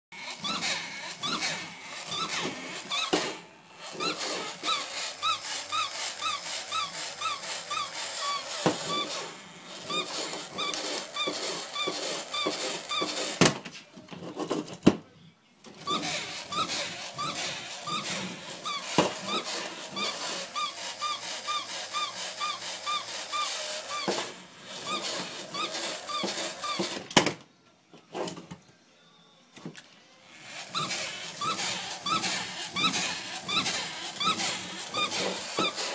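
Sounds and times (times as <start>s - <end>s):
toy mechanism clattering: 0.2s - 13.4s, 15.8s - 27.2s, 30.3s - 35.9s
toy short squeak: 0.2s - 13.4s, 15.8s - 27.0s, 30.6s - 35.9s.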